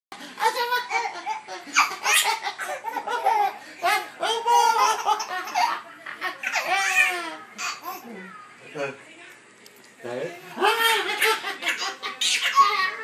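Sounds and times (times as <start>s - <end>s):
baby laughing: 0.3s - 8.0s, 10.6s - 13.0s.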